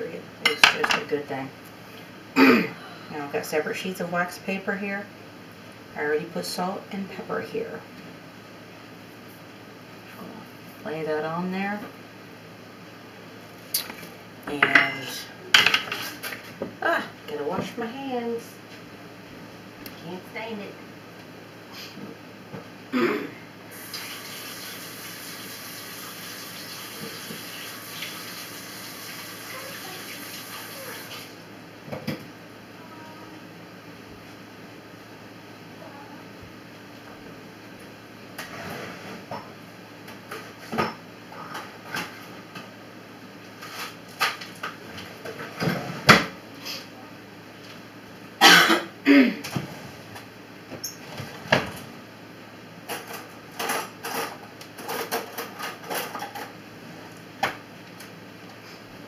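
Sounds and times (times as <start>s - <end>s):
kitchen items knocking and clacking: 15.5s - 16.3s
tap water running: 23.7s - 31.4s.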